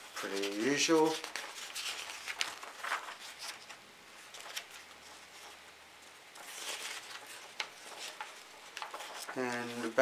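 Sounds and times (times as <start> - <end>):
paper pages turning: 0.0 - 10.0.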